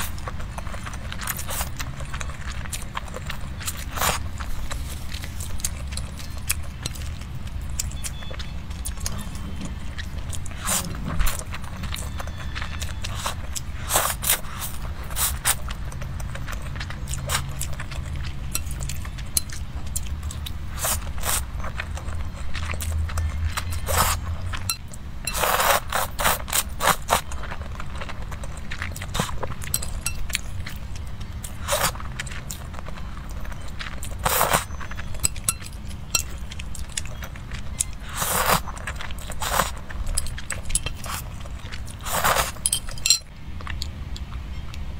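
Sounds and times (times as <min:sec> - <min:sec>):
chewing with wet smacks: 0:00.0 - 0:44.9
low steady hum: 0:00.0 - 0:44.9
slurping noodles: 0:10.4 - 0:11.6, 0:13.1 - 0:15.6, 0:25.3 - 0:27.2, 0:34.1 - 0:34.8, 0:38.0 - 0:39.8, 0:41.9 - 0:42.7
person slurping noodles: 0:42.0 - 0:42.6.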